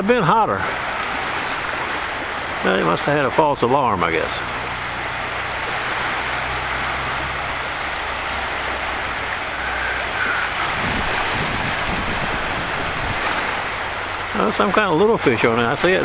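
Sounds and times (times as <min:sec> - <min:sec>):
small waves washing in: 0:00.0 - 0:16.0
wind gusting on microphone: 0:00.6 - 0:16.0.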